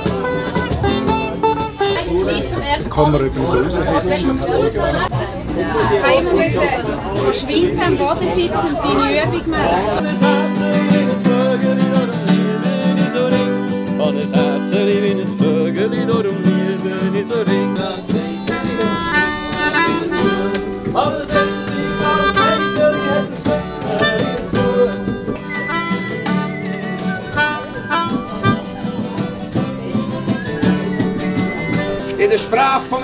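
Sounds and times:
acoustic guitar: 0:00.0 - 0:33.0
melodica sustained notes: 0:18.2 - 0:32.1.

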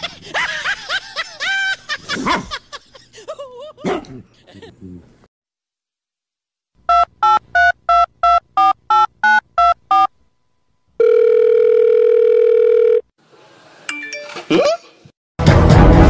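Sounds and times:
long steady phone tone: 0:11.0 - 0:13.1.

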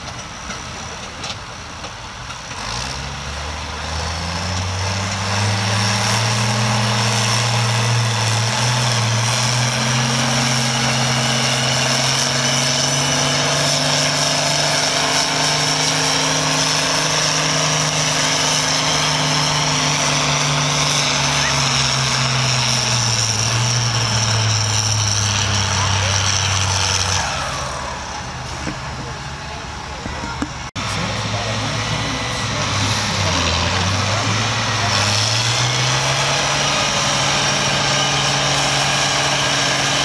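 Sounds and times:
tractor diesel engine revving: 0:00.0 - 0:40.0.

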